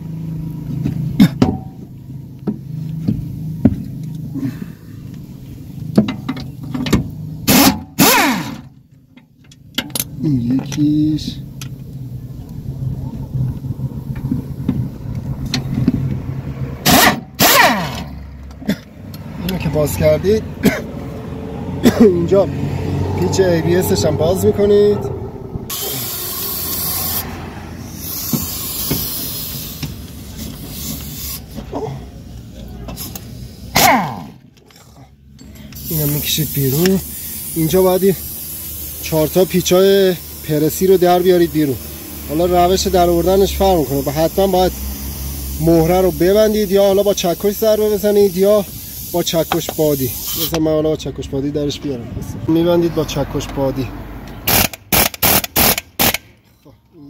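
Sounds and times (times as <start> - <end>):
steady low hum: 0.0 - 28.0
pneumatic impact wrench hissing: 1.1 - 8.8, 16.8 - 20.9, 25.7 - 32.2, 32.9 - 50.8, 54.2 - 56.5
impact wrench hammering: 1.2 - 3.9, 5.9 - 8.7, 16.8 - 18.8, 27.9 - 30.0, 54.5 - 56.3.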